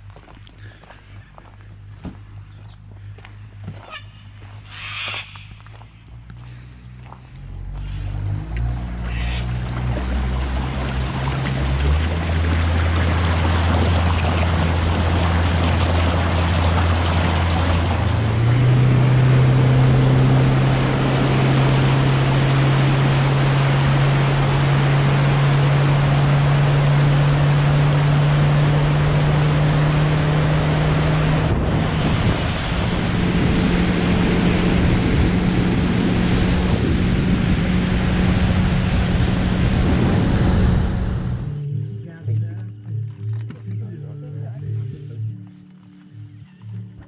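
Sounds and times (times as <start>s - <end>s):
outboard motor running: 6.5s - 41.6s
water splashing along hull: 8.6s - 41.6s.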